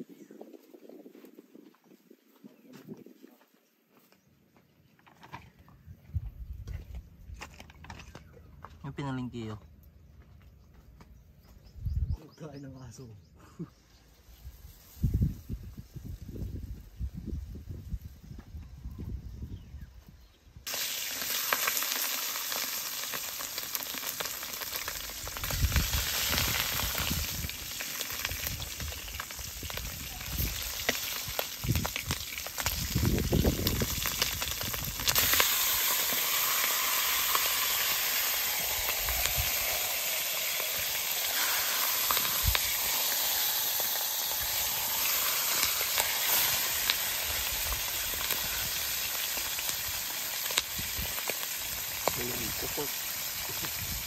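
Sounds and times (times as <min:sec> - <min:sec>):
meat sizzling in a wok: 0:14.1 - 0:18.2, 0:20.7 - 0:54.0.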